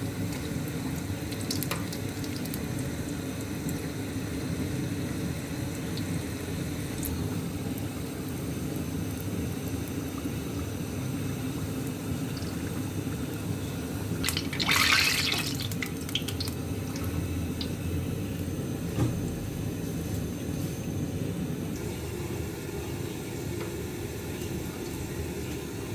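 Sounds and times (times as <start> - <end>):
food deep-frying in oil: 0.0 - 25.9
oil splashing: 14.0 - 17.8.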